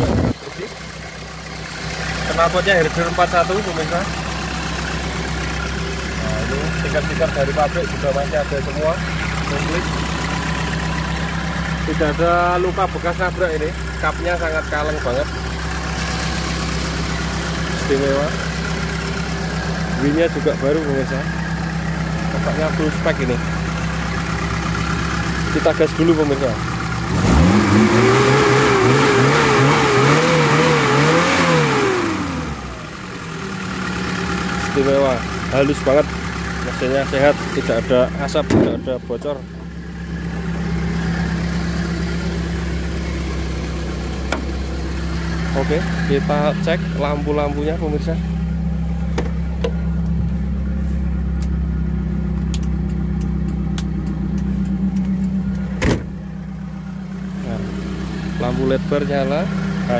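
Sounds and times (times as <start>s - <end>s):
motorcycle engine idling: 0.0s - 27.1s, 32.6s - 59.9s
motorcycle engine revving: 26.2s - 33.6s.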